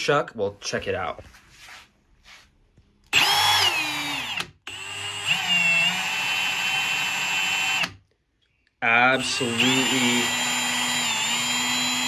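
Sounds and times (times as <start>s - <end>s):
drill spinning with high whine: 3.1s - 8.0s, 8.9s - 12.0s.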